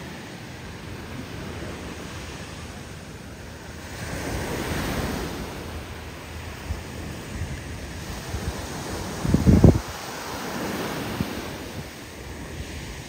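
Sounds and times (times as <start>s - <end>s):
ocean surf breaking: 0.0s - 13.0s
wind on microphone: 0.0s - 13.0s.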